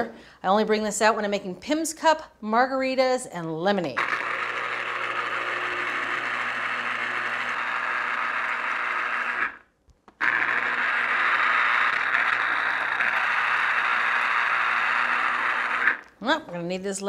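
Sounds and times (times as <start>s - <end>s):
citrus juicer motor whirring: 4.0s - 9.6s, 10.2s - 16.1s.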